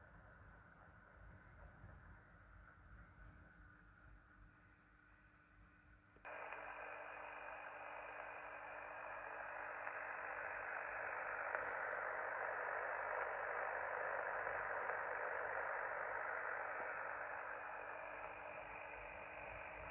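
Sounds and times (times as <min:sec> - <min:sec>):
radio band-noise hiss: 0:06.3 - 0:19.9.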